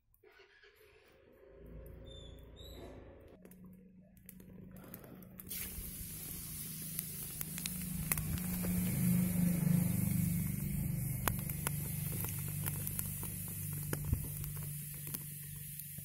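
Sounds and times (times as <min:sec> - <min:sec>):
low hum: 0:01.4 - 0:16.0
sharp oil pops: 0:05.4 - 0:16.0
spices sizzling in hot oil: 0:05.5 - 0:16.0.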